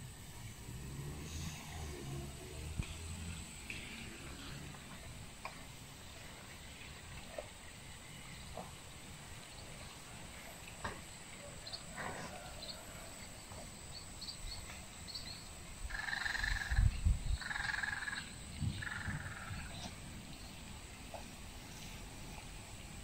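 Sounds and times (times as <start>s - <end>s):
frogs croaking: 13.6s - 20.5s.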